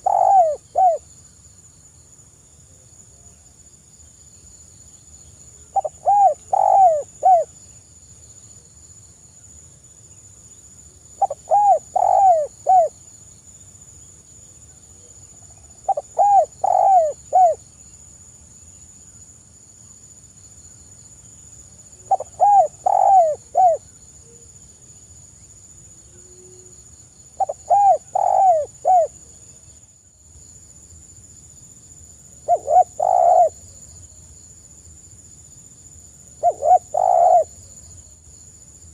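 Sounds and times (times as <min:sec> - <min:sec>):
dove cooing: 0:00.0 - 0:01.0, 0:05.7 - 0:07.5, 0:11.2 - 0:12.9, 0:15.8 - 0:17.6, 0:22.0 - 0:23.8, 0:27.4 - 0:29.2, 0:32.5 - 0:33.7, 0:36.4 - 0:37.6
crickets droning: 0:00.0 - 0:38.9.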